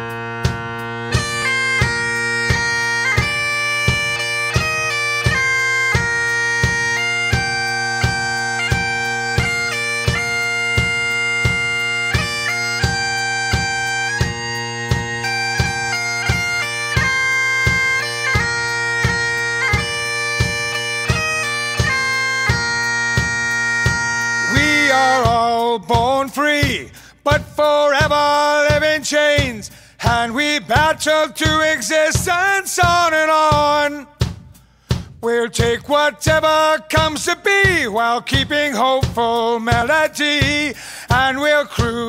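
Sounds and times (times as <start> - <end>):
bagpipes playing over drone: 0.0 - 25.4
regular drum beat: 0.0 - 42.0.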